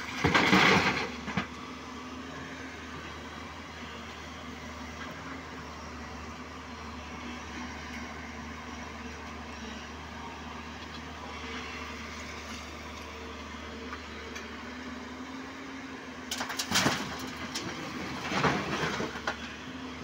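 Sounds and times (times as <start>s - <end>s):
excavator diesel engine running: 0.0s - 20.0s
boulders crashing into truck body: 0.1s - 1.5s, 16.4s - 19.2s.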